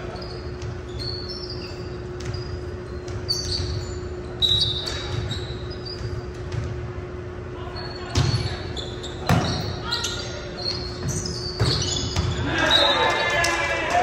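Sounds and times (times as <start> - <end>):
sneakers squeaking on hardwood: 0.0 - 13.3.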